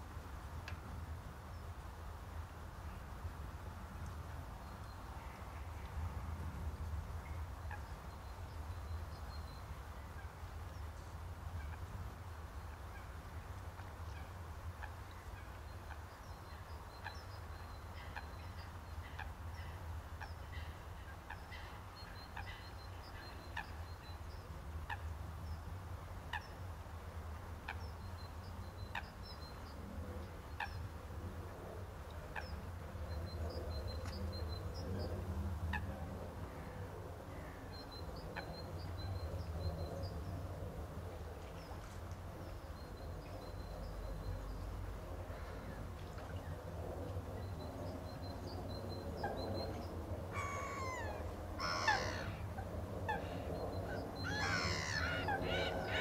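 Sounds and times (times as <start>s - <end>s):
birds twittering: 48.2s - 56.0s.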